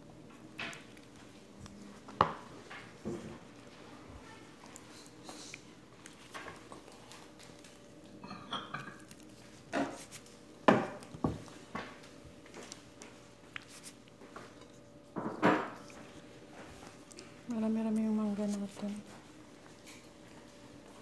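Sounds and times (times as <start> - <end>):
soft handling noise: 9.0 - 21.0.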